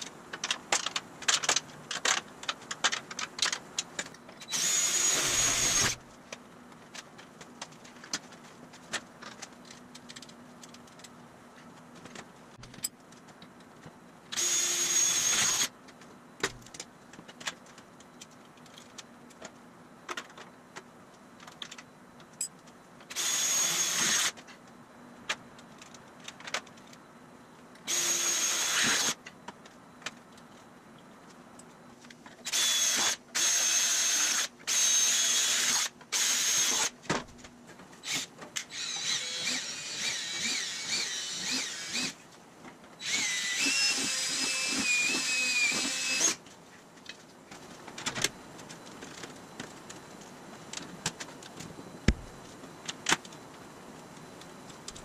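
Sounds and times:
cordless drill whining: 4.5 - 6.0, 14.4 - 15.7, 23.2 - 24.3, 27.9 - 29.2, 32.5 - 36.9, 38.0 - 42.2, 43.0 - 46.4
drill drilling into metal sheet: 4.5 - 6.0, 14.4 - 15.7, 23.1 - 24.3, 27.9 - 29.2, 32.5 - 36.9, 38.1 - 42.2, 43.0 - 46.4.

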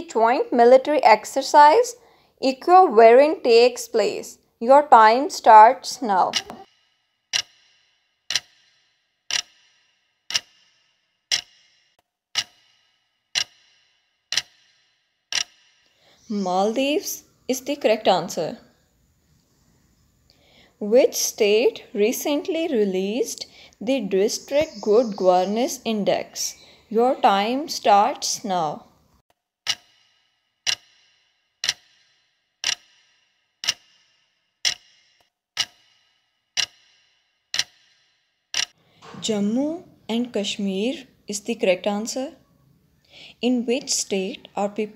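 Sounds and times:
clock ticks with short ring: 6.3 - 15.9, 29.6 - 38.8.

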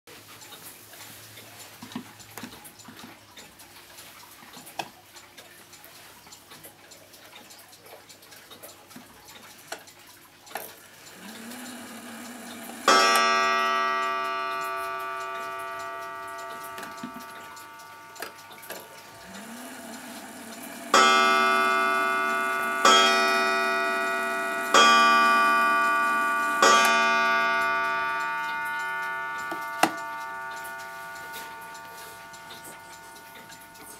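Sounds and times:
clock ticking: 0.1 - 33.9
clock hands clicking: 0.3 - 33.9
clock gong strikes: 11.1 - 33.9.

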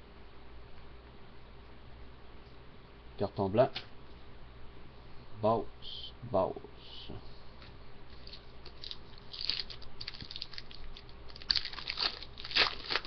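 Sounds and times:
plastic wrapper crinkling: 8.1 - 13.0.

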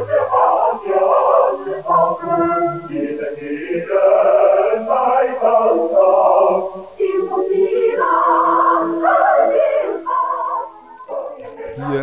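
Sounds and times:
choir singing: 0.0 - 12.0.

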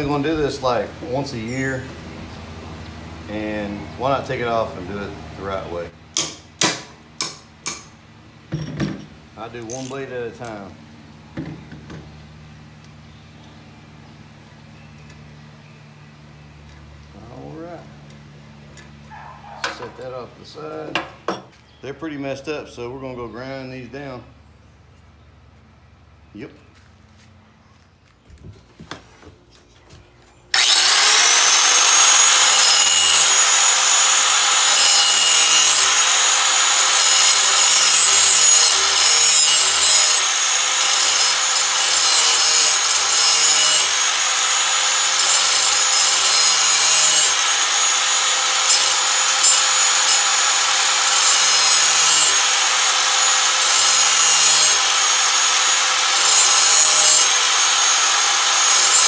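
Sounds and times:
angle grinder grinding steel: 30.5 - 59.0.

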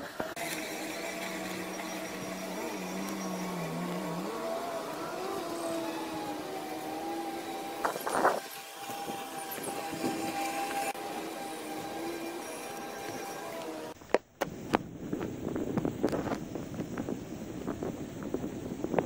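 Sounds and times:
robotic lawnmower motors humming: 0.0 - 14.0.

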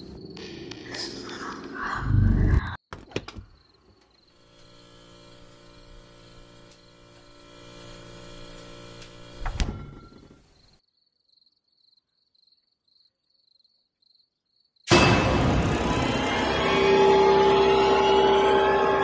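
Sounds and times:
sharp hit: 14.9 - 19.0.

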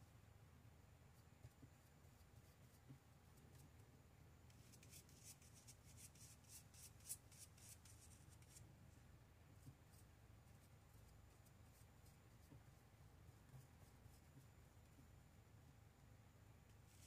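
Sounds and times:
bristle brush scratching stamp pad: 4.5 - 8.6.

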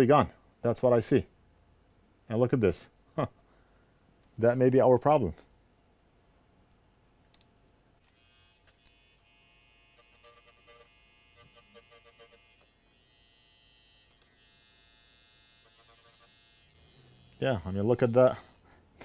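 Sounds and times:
grinding pen buzzing: 8.0 - 18.8.

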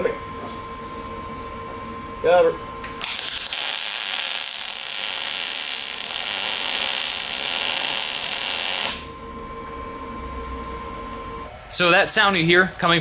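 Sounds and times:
welding arc crackling: 2.9 - 9.2.

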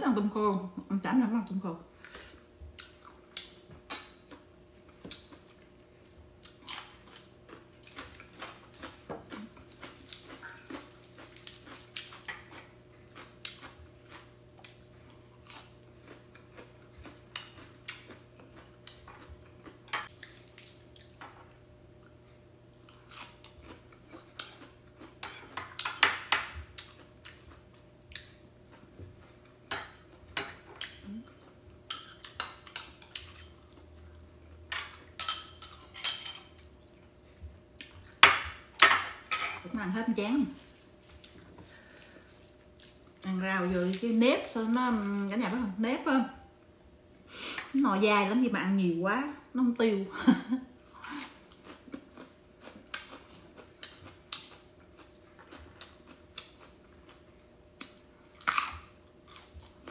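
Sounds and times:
chewing: 6.4 - 21.2, 50.8 - 59.9.

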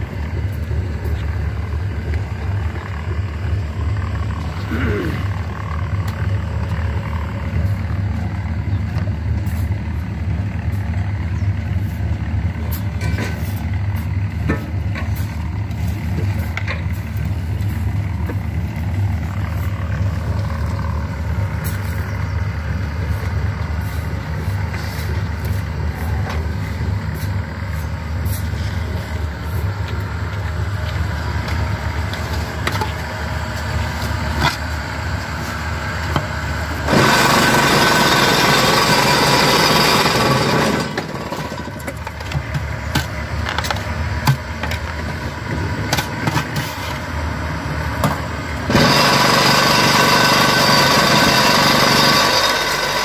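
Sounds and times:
machinery low drone: 0.0 - 51.0
high-pitched machine sound: 48.7 - 53.0.

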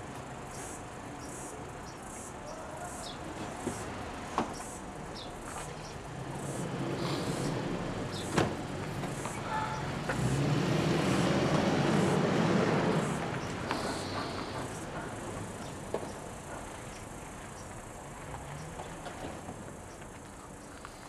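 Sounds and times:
insects chirping: 0.0 - 21.0
suv engine pulling away: 5.1 - 21.0
car door shutting: 8.1 - 9.4.

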